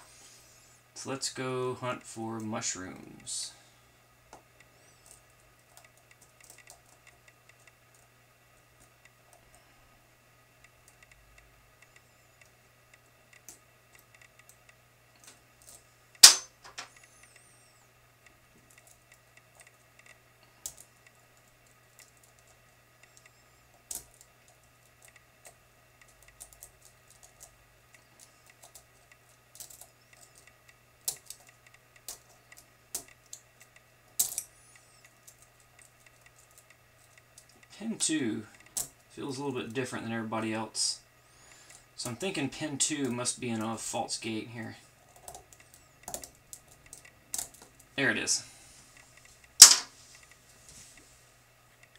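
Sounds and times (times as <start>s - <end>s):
lock picks clicking on pins: 25.0s - 37.7s.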